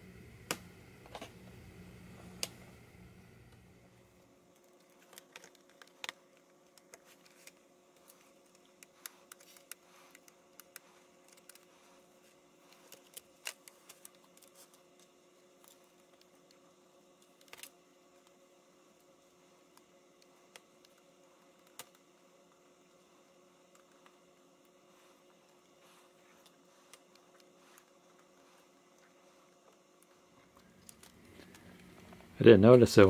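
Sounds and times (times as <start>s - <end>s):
faint steady hum: 0.0s - 33.0s.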